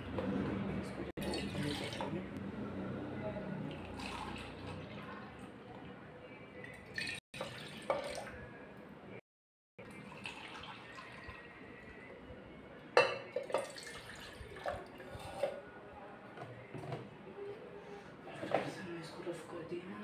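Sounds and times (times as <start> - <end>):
juice trickling and dripping: 9.8 - 12.0.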